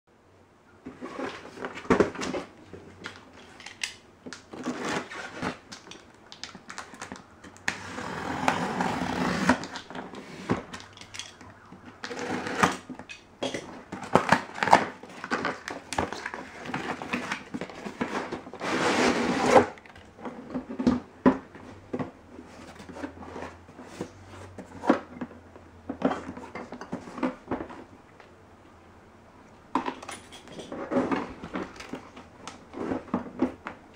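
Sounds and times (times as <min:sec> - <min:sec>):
cardboard box scraping and rustling: 0:00.8 - 0:02.6, 0:04.5 - 0:05.7, 0:07.7 - 0:10.8, 0:12.1 - 0:13.0, 0:13.9 - 0:21.0, 0:30.7 - 0:33.6.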